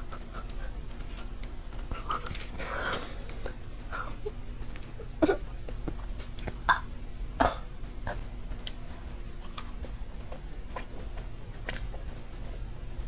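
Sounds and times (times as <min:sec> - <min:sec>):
woman's throat noises: 0:01.9 - 0:08.8
mouth clicks chewing: 0:11.6 - 0:11.9.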